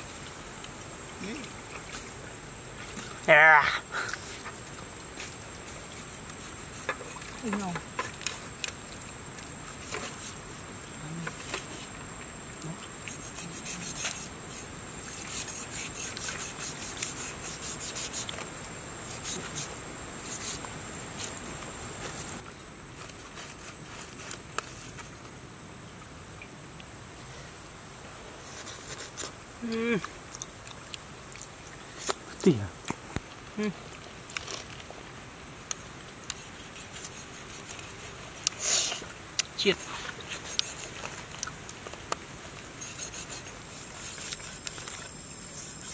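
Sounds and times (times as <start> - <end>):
palm leaves rustling: 0.0 - 25.4, 27.1 - 45.9
cleaver scraping fish bones: 13.1 - 18.5, 36.3 - 39.0, 39.6 - 41.3, 42.7 - 45.9.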